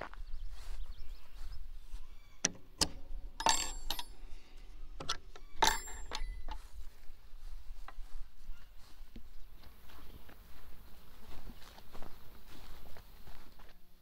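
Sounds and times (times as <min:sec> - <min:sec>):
ringing metallic clinks: 0:03.4 - 0:04.5, 0:05.4 - 0:06.7.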